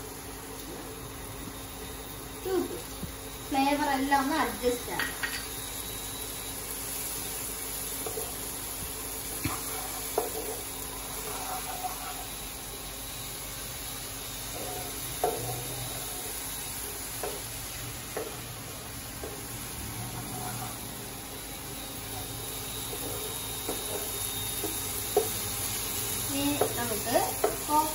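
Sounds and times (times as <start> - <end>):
sauce sizzling in a frying pan: 0.0 - 27.9
spatula stirring: 9.4 - 12.4, 19.2 - 20.9, 22.7 - 27.9
spatula knocking against pan: 27.4 - 27.7.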